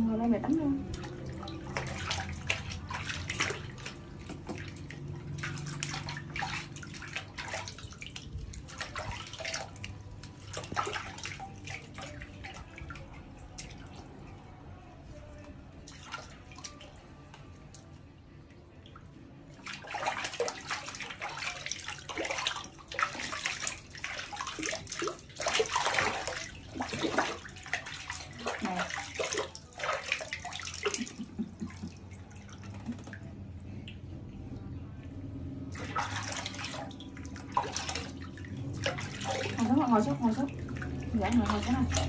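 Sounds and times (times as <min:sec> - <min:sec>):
water splashing in metal basin: 0:00.0 - 0:42.0.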